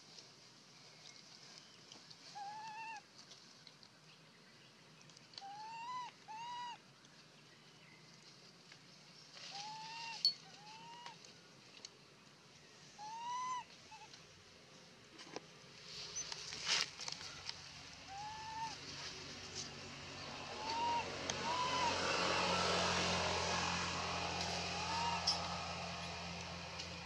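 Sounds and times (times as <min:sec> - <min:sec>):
baby monkey coo calls: 0:02.4 - 0:03.0, 0:05.4 - 0:06.8, 0:13.0 - 0:14.1, 0:18.1 - 0:18.8, 0:20.5 - 0:22.5.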